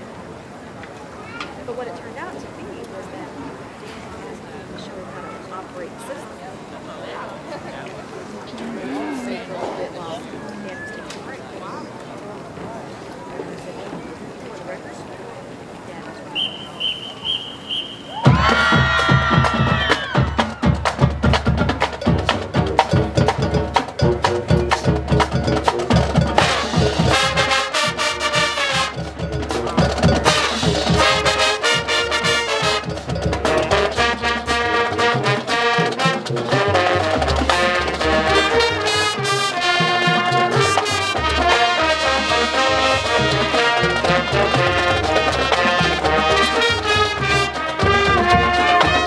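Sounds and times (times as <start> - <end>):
marching band playing: 16.4 - 49.0
drum strikes: 18.2 - 49.0
sustained brass chords: 25.6 - 49.0.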